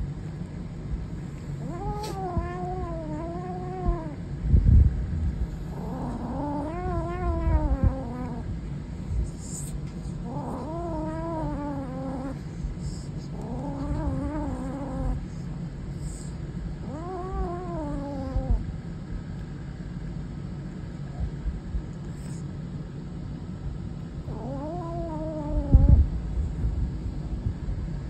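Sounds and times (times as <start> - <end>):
kitten growling: 1.6 - 4.3, 5.4 - 8.5, 9.2 - 18.7, 24.2 - 26.1.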